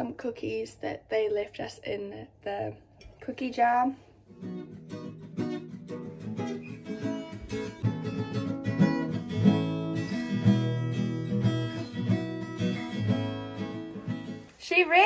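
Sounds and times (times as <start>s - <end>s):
nylon-string guitar playing: 4.2s - 14.6s.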